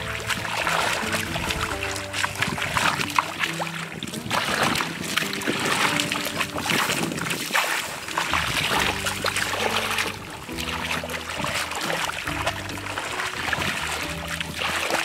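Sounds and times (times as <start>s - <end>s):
background music with low notes: 0.0s - 15.0s
water splashing and sloshing: 0.0s - 15.0s.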